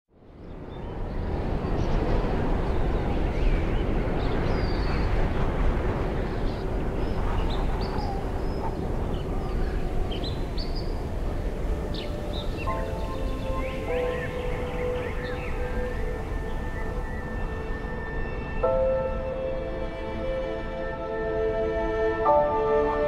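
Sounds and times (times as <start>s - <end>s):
steady rushing noise: 0.2s - 23.0s
birds chirping and singing: 0.6s - 19.3s.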